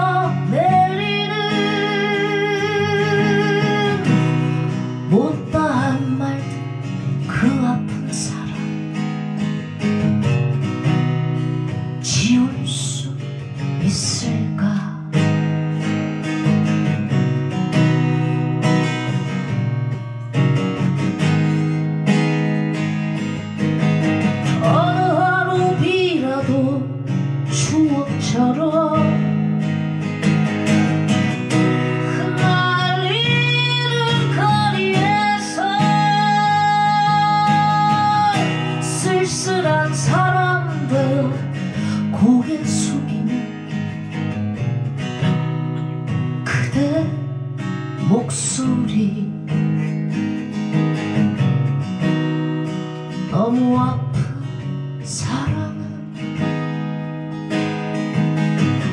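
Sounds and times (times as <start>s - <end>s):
woman singing: 0.0s - 9.8s, 11.7s - 16.0s, 24.2s - 30.1s, 31.1s - 44.3s, 46.1s - 50.2s, 53.1s - 57.0s
acoustic guitar strumming: 0.0s - 58.9s.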